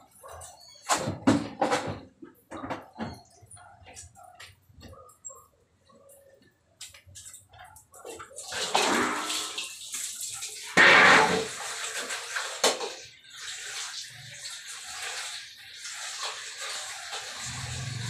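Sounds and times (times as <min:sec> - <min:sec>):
hose water splashing: 0:08.2 - 0:18.0.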